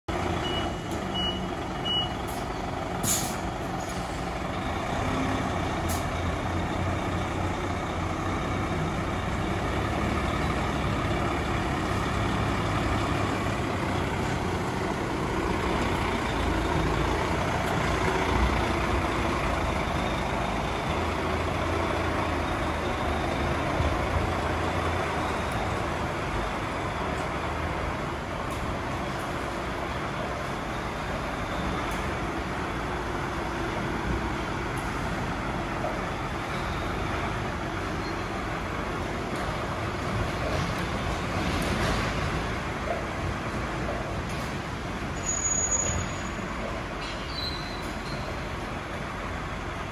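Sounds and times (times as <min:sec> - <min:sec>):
diesel truck engine running: 0:00.1 - 0:49.9
reversing beeps: 0:00.4 - 0:02.6, 0:36.4 - 0:37.2, 0:37.9 - 0:38.5
air brakes hissing: 0:02.2 - 0:04.4.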